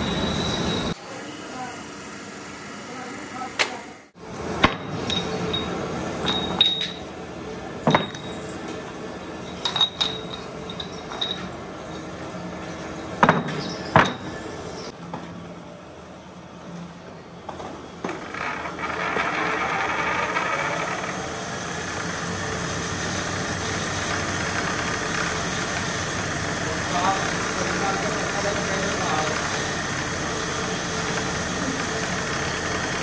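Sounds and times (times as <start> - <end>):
steady background hum: 0.0 - 33.0
metal pins clinking: 7.9 - 11.6.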